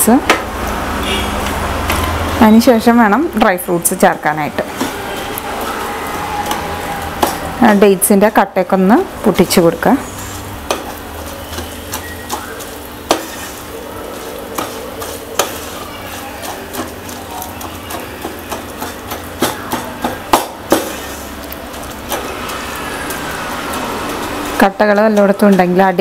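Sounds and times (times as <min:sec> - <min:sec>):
spatula scraping and knocking pan: 0:04.6 - 0:08.0, 0:09.4 - 0:26.0.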